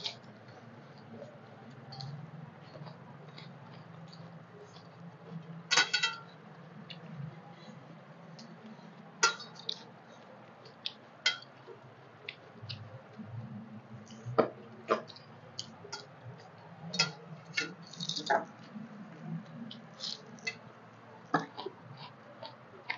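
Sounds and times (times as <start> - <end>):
low steady hum: 0.0 - 22.9
steel plates and bowls clinking: 5.7 - 6.3, 9.2 - 9.8, 11.2 - 11.5, 16.9 - 18.4.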